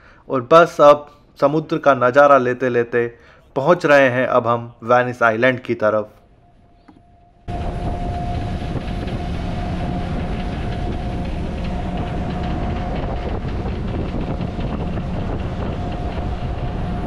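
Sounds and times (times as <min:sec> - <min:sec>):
ferry engine droning: 0:06.3 - 0:17.0.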